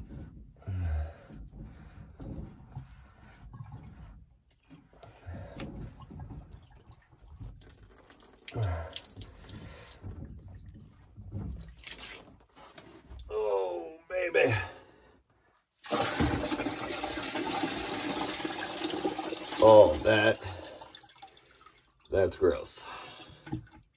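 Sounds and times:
water splashing and dripping: 0:02.2 - 0:12.6, 0:15.8 - 0:23.9.

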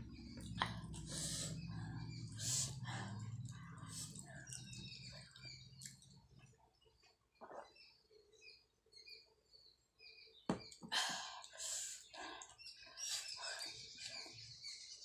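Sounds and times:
breathing noises: 0:00.6 - 0:04.5.

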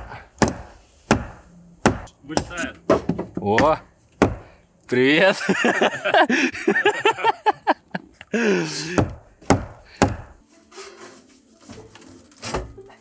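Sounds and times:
sharp knocks: 0:00.0 - 0:04.6, 0:09.0 - 0:10.4.

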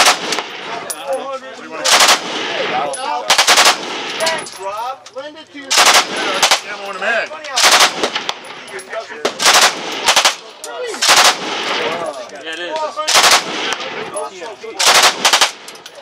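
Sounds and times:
machine pistol automatic bursts: 0:01.9 - 0:02.3, 0:03.3 - 0:03.9, 0:05.7 - 0:06.7, 0:07.6 - 0:08.3, 0:09.4 - 0:10.4, 0:11.0 - 0:11.5, 0:13.1 - 0:13.8, 0:14.8 - 0:15.7.

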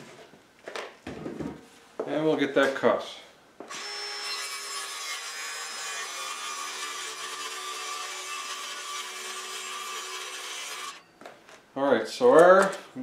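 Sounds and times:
circular saw cutting plywood: 0:03.7 - 0:11.0.

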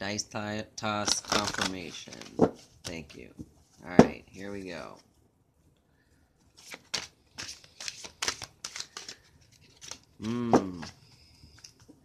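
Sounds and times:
cards being shuffled by hand: 0:01.0 - 0:05.0, 0:06.4 - 0:12.0.

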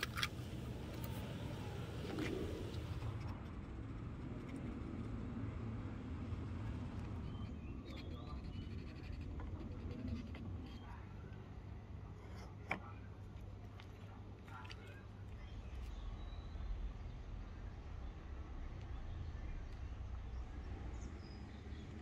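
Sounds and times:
steady low hum: 0:00.0 - 0:22.0
faint bird chirps: 0:07.2 - 0:11.2, 0:14.8 - 0:17.1.

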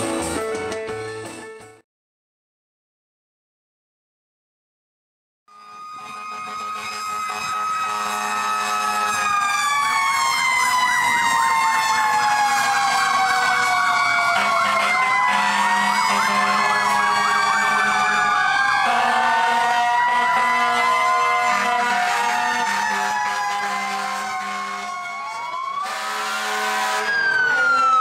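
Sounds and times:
fire truck sirens wailing: 0:05.5 - 0:28.0.

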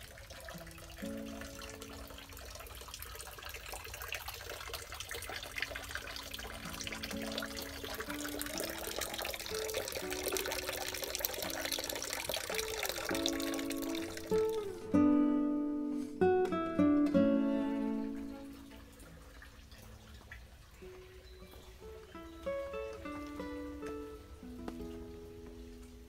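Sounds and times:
water trickling into stone basin: 0:00.0 - 0:15.1, 0:17.3 - 0:26.0.

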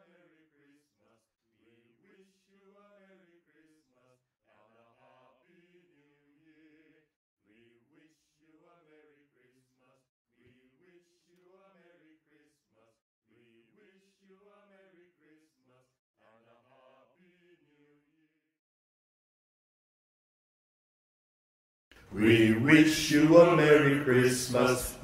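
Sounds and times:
faint singing voices: 0:22.0 - 0:25.0.

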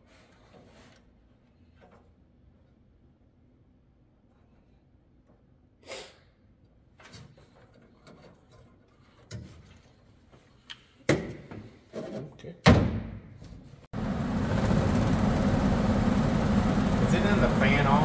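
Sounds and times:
furnace blower motor running: 0:13.9 - 0:18.0.

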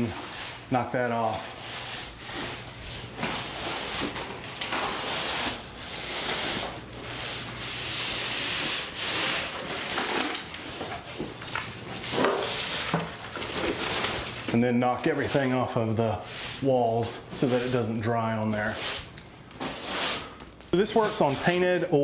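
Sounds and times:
broom brushing against wall: 0:00.0 - 0:21.9.

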